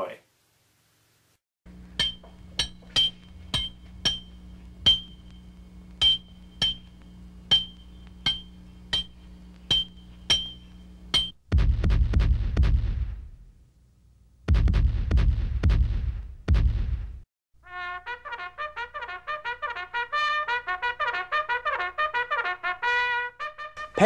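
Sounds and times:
steady low hum: 0.4 - 17.2
sharp metallic clinks: 2.0 - 5.3, 6.0 - 11.4.

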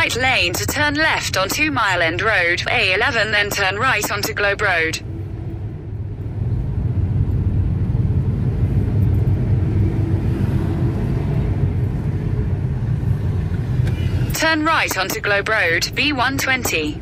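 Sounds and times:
tyres on the road: 0.0 - 17.0
car engine rumble from inside cabin: 4.4 - 17.0.

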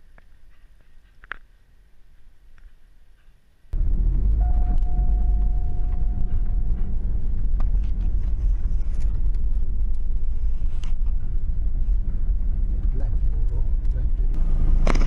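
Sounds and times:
thin high whine: 3.8 - 9.2
car engine rumble: 3.8 - 15.0.

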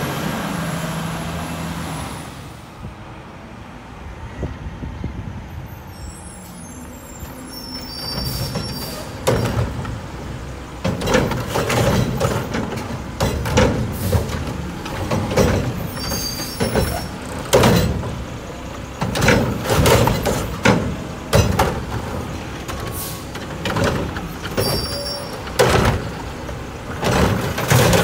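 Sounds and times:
clanks and bangs of arm and cart: 8.2 - 28.0.

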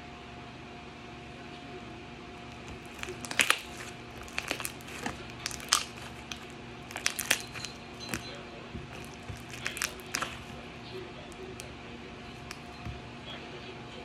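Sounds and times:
slime clicking and crackling: 2.5 - 11.7, 12.4 - 13.0.

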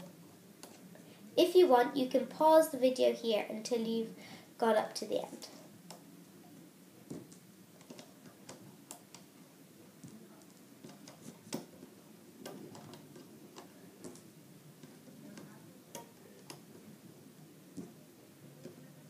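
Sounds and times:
rubber bands clicking on pegs: 7.1 - 9.3, 10.0 - 16.8.

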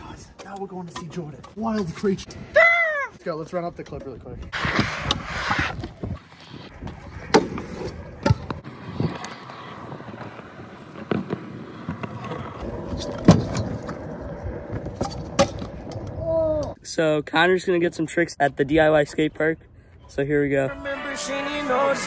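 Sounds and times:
scooter wheels rolling on concrete: 3.4 - 16.8.

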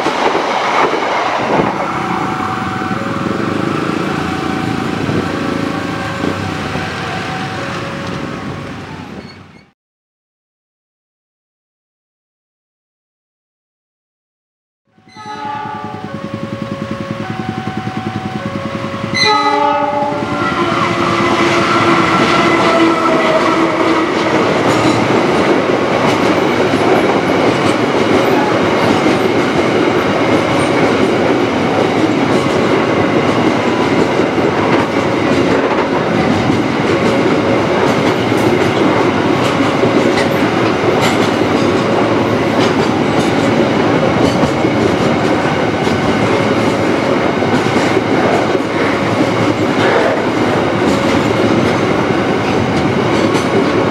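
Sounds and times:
diesel locomotive engine passing: 0.0 - 9.7, 14.9 - 53.9
freight wagons clacking over rail joints: 15.7 - 53.9.

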